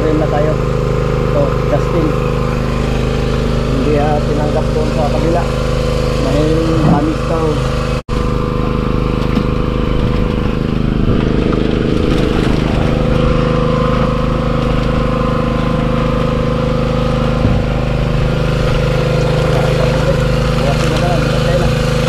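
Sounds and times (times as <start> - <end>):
engine running steadily: 0.0 - 22.0.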